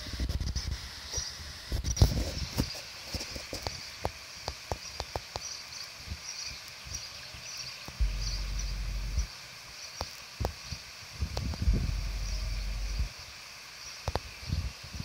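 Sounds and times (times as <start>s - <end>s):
wind rumble on microphone: 0.0s - 3.8s, 8.0s - 9.3s, 10.4s - 13.2s, 14.1s - 15.0s
flowing river water: 0.7s - 15.0s.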